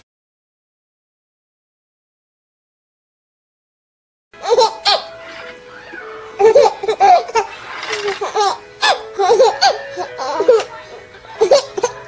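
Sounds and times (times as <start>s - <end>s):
babies giggling: 4.4s - 12.0s
background music: 4.4s - 12.0s.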